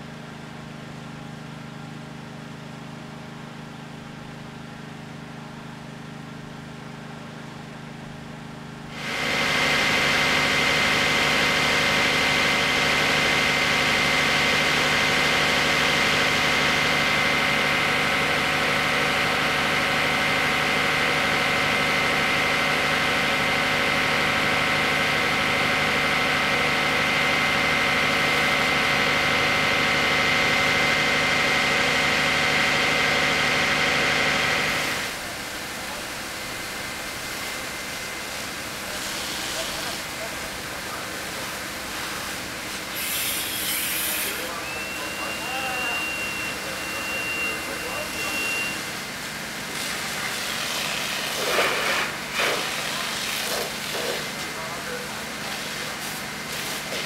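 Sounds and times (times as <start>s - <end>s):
engine running: 0.0s - 57.0s
loud rush with high whine: 44.2s - 49.2s.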